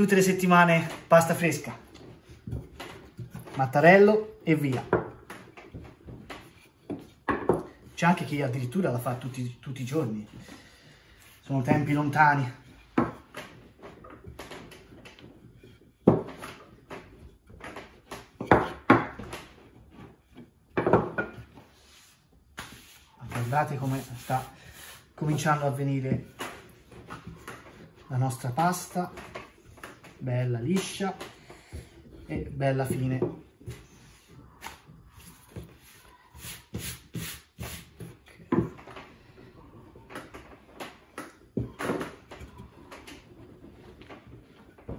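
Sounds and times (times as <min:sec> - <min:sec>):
wooden knocks and thumps: 0:00.0 - 0:09.2, 0:09.8 - 0:21.8, 0:22.5 - 0:44.9
rolling pin rubbing on dough: 0:05.5 - 0:18.8, 0:21.4 - 0:28.9, 0:31.6 - 0:38.4
dough swishing on wooden board: 0:21.5 - 0:25.8, 0:33.8 - 0:38.3.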